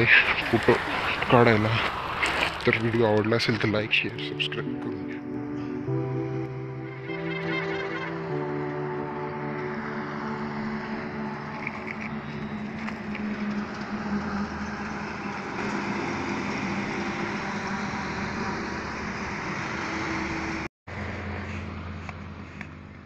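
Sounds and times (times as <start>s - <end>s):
vehicle engine running: 5.4s - 23.0s.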